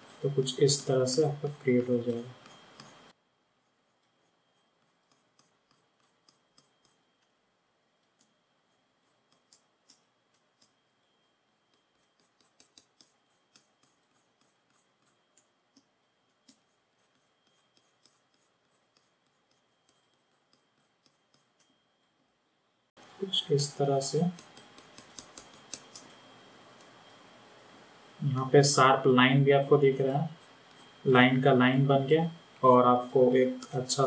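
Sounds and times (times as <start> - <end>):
faint high whine: 0.0 - 34.0
computer mouse clicks: 4.8 - 7.3, 9.0 - 10.8, 11.7 - 14.6, 15.3 - 21.7, 24.3 - 26.2.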